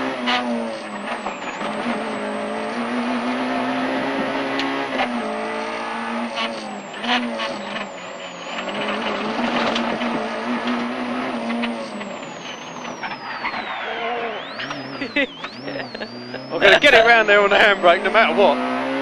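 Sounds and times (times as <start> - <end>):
car engine revving hard: 0.0 - 19.0
road and tyre noise: 0.0 - 19.0
sharp clicks: 8.6 - 16.2.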